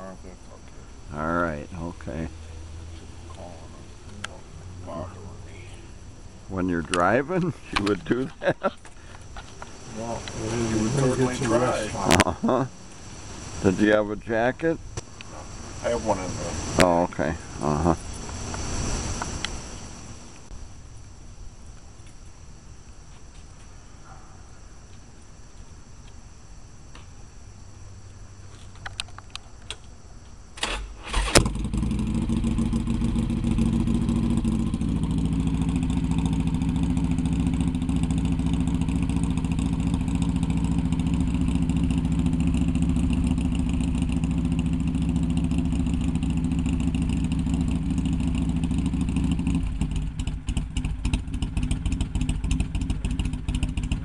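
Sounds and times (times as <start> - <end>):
motorcycle engine starting and idling: 1.8 - 20.5, 30.5 - 54.0.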